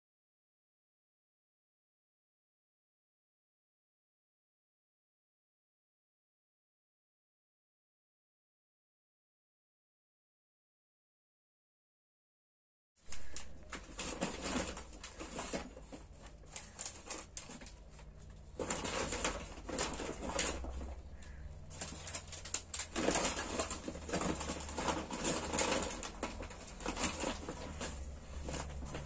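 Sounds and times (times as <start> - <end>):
plastic bag rustling: 13.0 - 29.0
foil trays handled: 13.1 - 29.0
low steady hum: 13.1 - 29.0.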